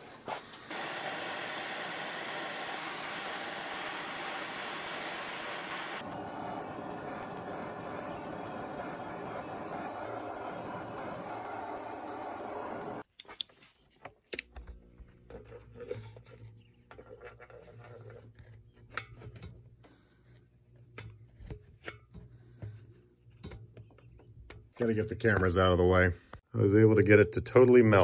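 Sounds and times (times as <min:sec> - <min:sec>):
soldering iron scraping metal: 0:00.0 - 0:13.1, 0:15.2 - 0:22.7
torch flame hissing: 0:00.0 - 0:13.1.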